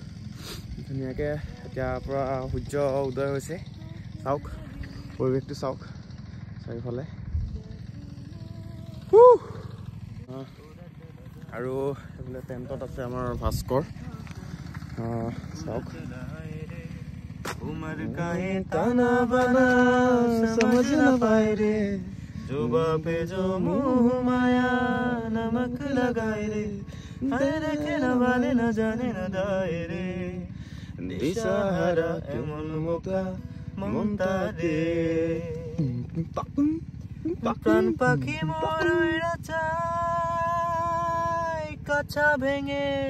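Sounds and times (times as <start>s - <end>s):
man singing: 15.6s - 43.0s.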